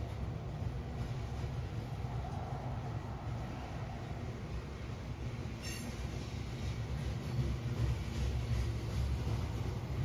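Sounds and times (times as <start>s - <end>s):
train rumbling: 0.0s - 10.0s
wheels squealing on rail: 5.4s - 10.0s.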